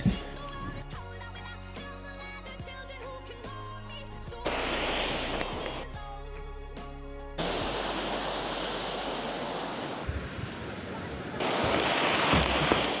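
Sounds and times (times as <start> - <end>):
surf breaking on beach: 4.5 - 5.9, 7.4 - 13.0.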